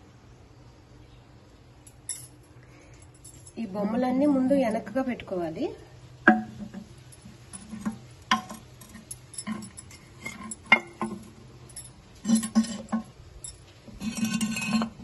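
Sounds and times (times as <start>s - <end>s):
porcelain clinking on glass: 6.3s - 14.9s.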